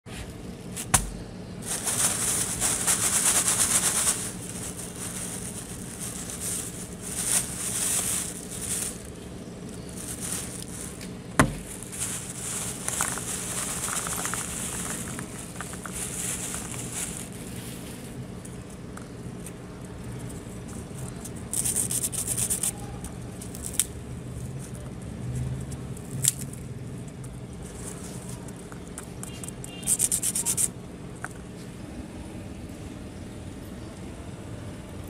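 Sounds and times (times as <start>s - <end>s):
plastic bag crinkling: 0.8s - 18.7s
sharp knocks: 0.9s - 1.2s, 11.4s - 11.7s.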